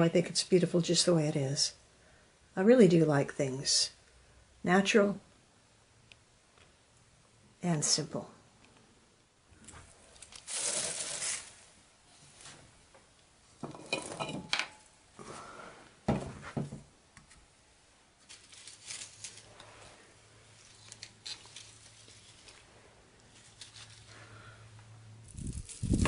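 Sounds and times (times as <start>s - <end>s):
dried flowers rustling: 10.0s - 12.6s, 18.2s - 24.6s, 25.2s - 26.0s.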